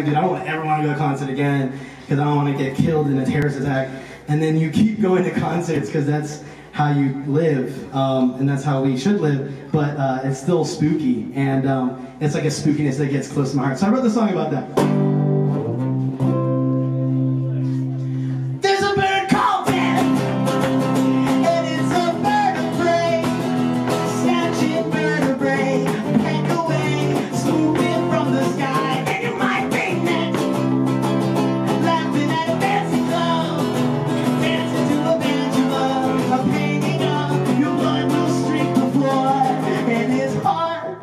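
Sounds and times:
strummed acoustic guitar: 0:14.8 - 0:40.9
man singing: 0:18.5 - 0:41.0.

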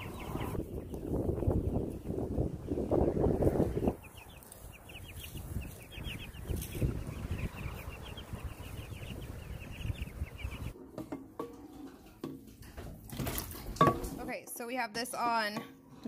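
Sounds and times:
chicks peeping: 0:00.0 - 0:10.8.

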